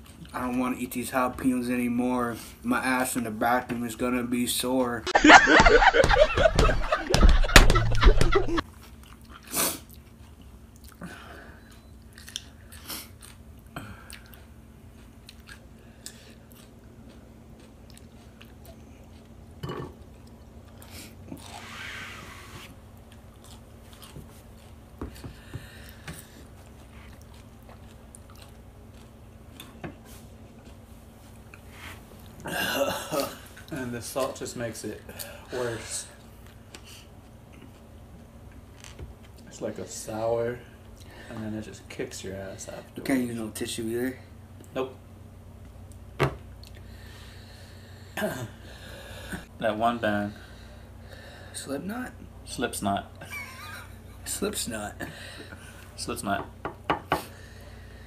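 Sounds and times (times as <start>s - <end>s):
faint steady hum: 0.0s - 58.0s
loud laughter: 5.2s - 8.6s
chewing and crunching: 8.6s - 21.6s, 22.9s - 32.4s, 36.1s - 39.5s.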